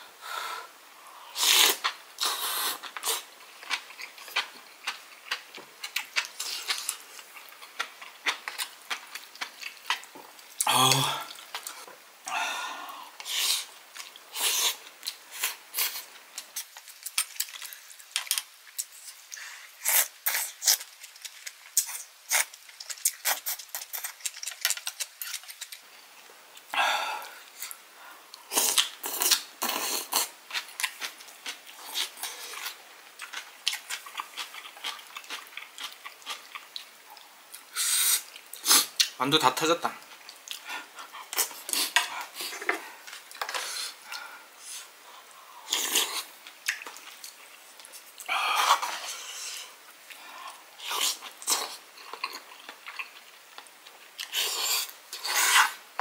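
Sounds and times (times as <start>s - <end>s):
slurps: 1.4s - 3.3s, 54.2s - 55.8s
person chewing: 1.4s - 12.0s, 13.2s - 26.0s, 26.6s - 39.2s, 40.0s - 55.8s.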